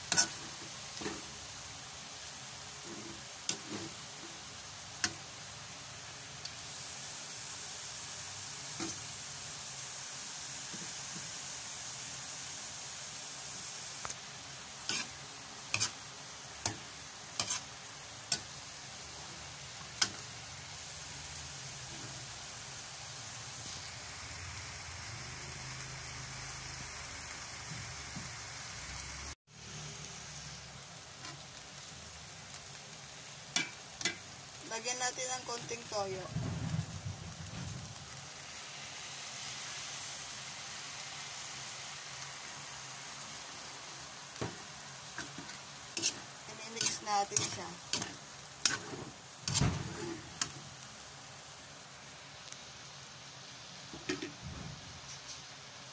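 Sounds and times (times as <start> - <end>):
food sizzling in a pan: 0.0 - 55.9
tongs clicking on pan: 0.1 - 0.4, 5.0 - 5.2, 18.3 - 18.5, 20.0 - 20.2, 33.5 - 34.3.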